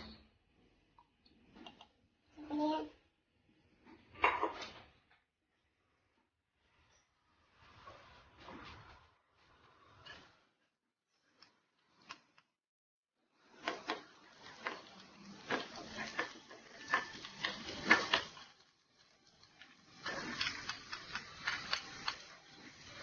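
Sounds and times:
spatula scraping a wok: 6.6s - 12.3s, 13.4s - 23.0s
garlic and onion sizzling: 13.3s - 23.0s.

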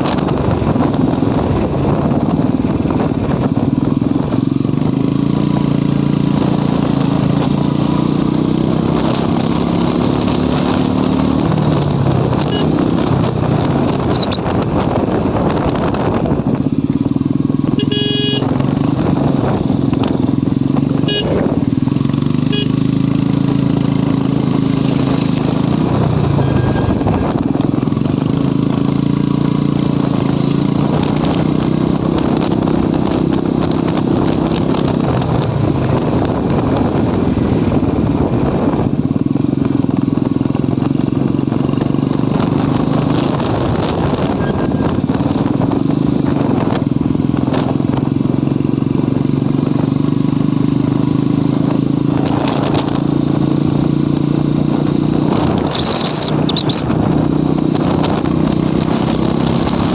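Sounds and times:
motorcycle engine running: 0.0s - 59.9s
road and wind noise: 0.0s - 59.9s.

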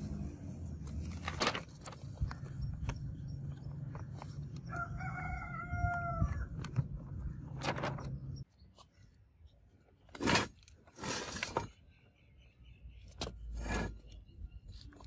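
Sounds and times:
paper crinkling: 0.8s - 4.6s, 6.5s - 8.4s
rooster crowing: 4.7s - 6.5s.

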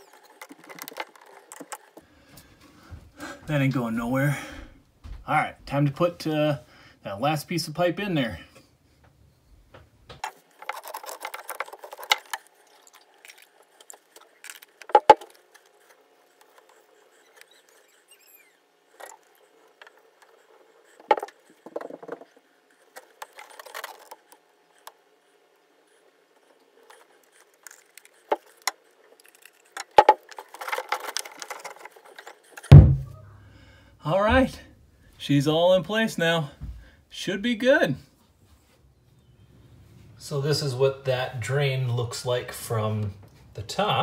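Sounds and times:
pipe handling clicks and scrapes: 0.0s - 2.0s, 10.2s - 25.0s, 25.9s - 32.8s
pipe thump: 32.7s - 33.2s.

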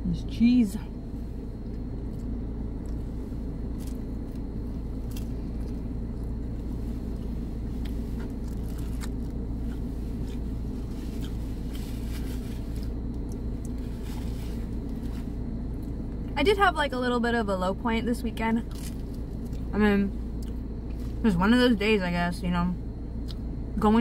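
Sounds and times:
car engine idling hum: 0.0s - 24.0s
chewing and mouth clicks: 1.6s - 13.8s, 20.4s - 21.0s, 23.2s - 23.5s.

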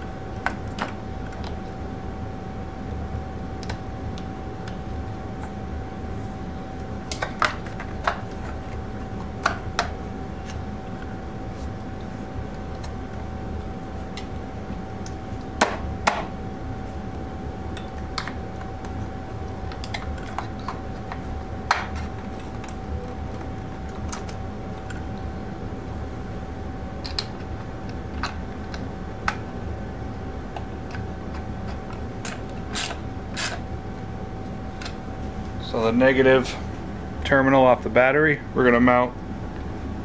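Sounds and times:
steady hum with faint whine: 0.0s - 40.0s.

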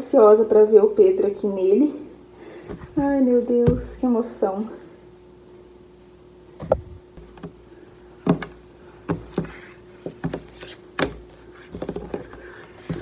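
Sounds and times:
faint steady hum: 0.0s - 13.0s
clothes bumps and rustles: 2.6s - 4.1s, 6.6s - 7.6s, 8.2s - 13.0s.

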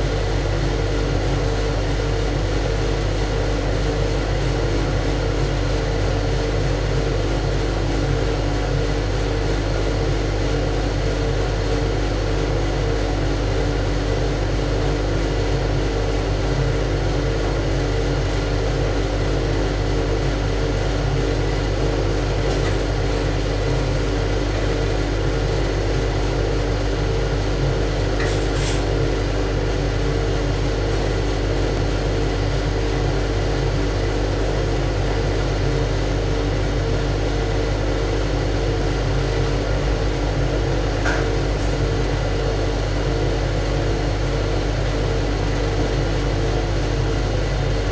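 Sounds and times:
engine room machinery drone: 0.0s - 47.9s.

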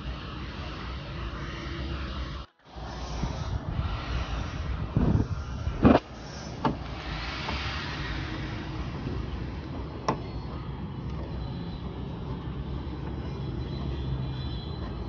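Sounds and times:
low outdoor rumble: 0.0s - 15.0s.

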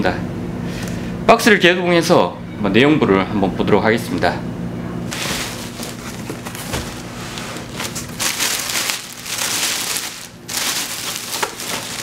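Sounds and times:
plastic bag crinkling: 5.1s - 12.0s.

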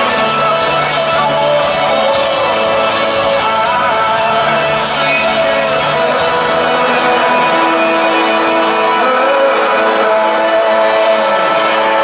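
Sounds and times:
live band music: 0.0s - 12.0s
strummed acoustic guitar: 0.0s - 12.0s.

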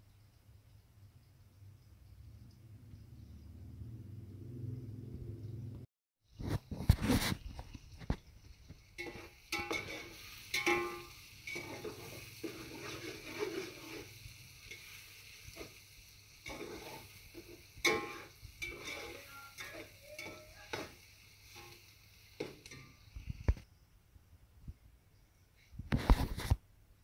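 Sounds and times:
onions sizzling in oil: 7.4s - 23.6s
metal spoon scraping a pot: 8.9s - 15.8s, 16.4s - 21.8s.

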